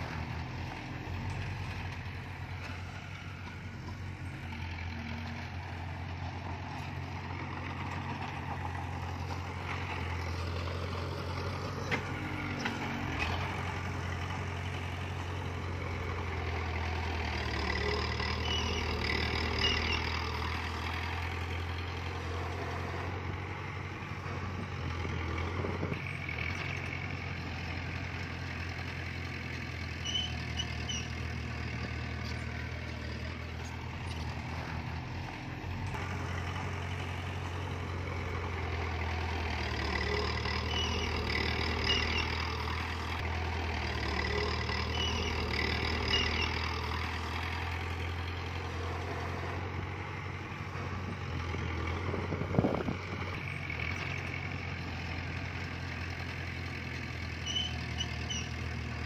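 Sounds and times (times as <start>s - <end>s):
diesel engine droning: 0.0s - 59.0s
high squeal: 18.3s - 20.3s, 30.0s - 31.2s, 40.4s - 42.6s, 44.7s - 46.8s, 57.4s - 58.6s.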